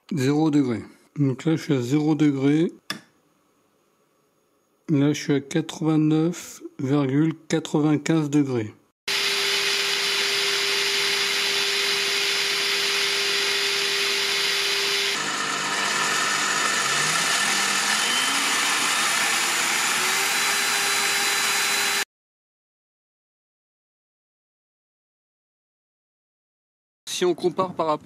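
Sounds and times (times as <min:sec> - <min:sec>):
pillar drill motor whining: 0:09.1 - 0:22.1.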